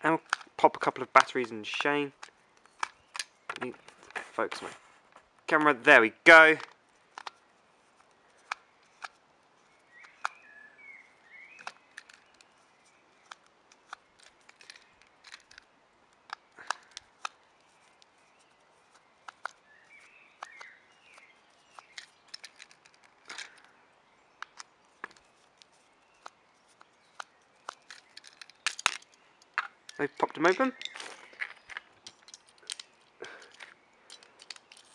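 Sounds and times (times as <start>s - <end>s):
screwdriver clicking and scraping: 13.2s - 15.7s, 16.3s - 19.6s, 20.4s - 23.7s, 24.4s - 34.9s.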